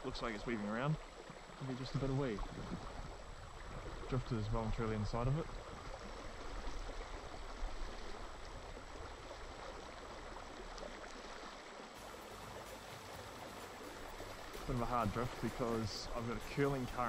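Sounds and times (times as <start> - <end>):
river water rushing: 5.5 - 17.0.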